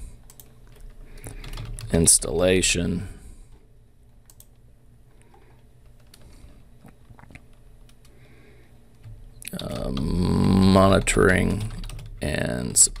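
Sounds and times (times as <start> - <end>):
low steady hum: 0.0 - 13.0
computer keys clicking: 0.2 - 2.1, 4.2 - 4.6, 5.2 - 8.2, 8.9 - 13.0.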